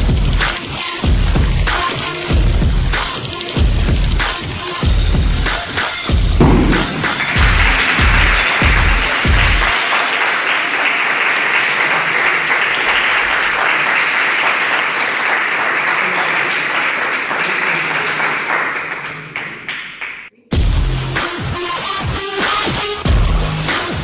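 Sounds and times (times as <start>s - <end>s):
small group clapping: 6.4s - 20.3s.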